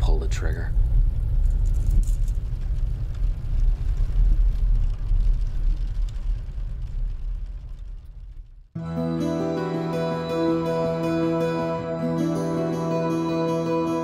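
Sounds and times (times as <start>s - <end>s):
music: 8.8s - 14.0s.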